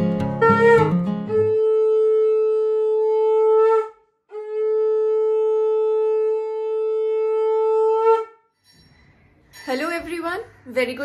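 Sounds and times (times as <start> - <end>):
conch shell blasts: 0.4 - 8.4.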